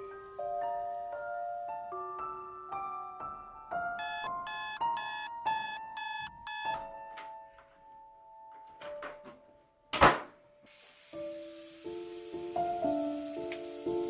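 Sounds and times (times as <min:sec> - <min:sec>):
alarm clock beeping: 0:04.0 - 0:06.8
tap running into sink: 0:12.6 - 0:14.0.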